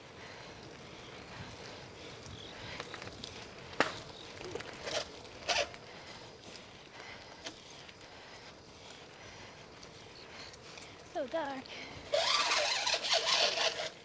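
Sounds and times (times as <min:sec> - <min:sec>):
bicycle tyre and wind noise: 0:00.0 - 0:14.0
short rasps: 0:04.0 - 0:06.3, 0:11.6 - 0:14.0.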